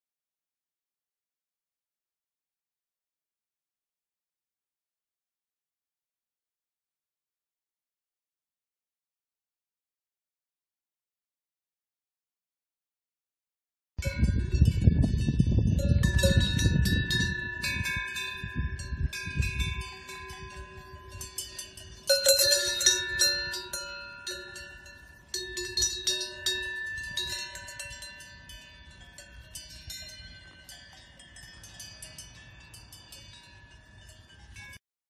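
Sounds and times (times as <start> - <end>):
cowbells clanging: 14.0 - 34.8.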